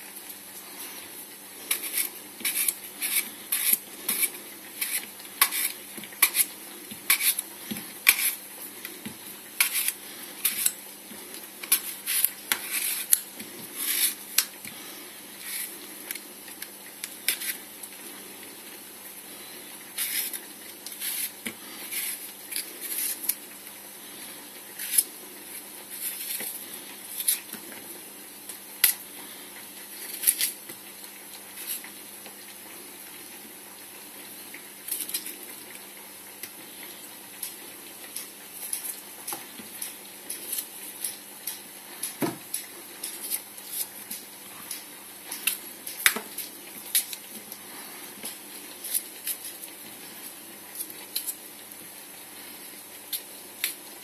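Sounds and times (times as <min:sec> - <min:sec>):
knife slicing apple: 0:01.7 - 0:10.8.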